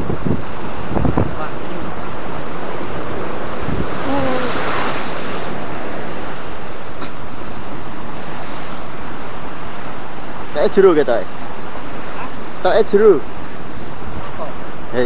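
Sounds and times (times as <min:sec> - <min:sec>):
wind on microphone: 0:00.0 - 0:10.4
sea surf breaking against cliff: 0:00.0 - 0:15.0.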